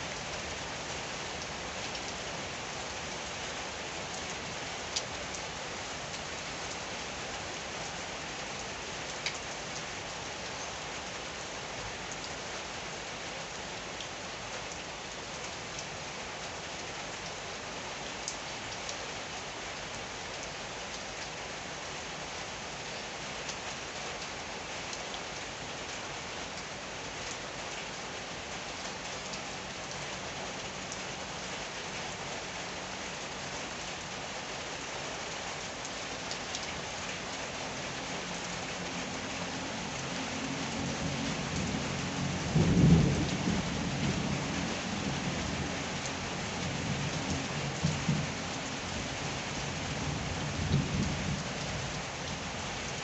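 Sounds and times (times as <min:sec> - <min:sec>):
rain falling steadily: 0:00.0 - 0:53.0
low rumble of thunder: 0:40.7 - 0:45.8, 0:49.8 - 0:52.1.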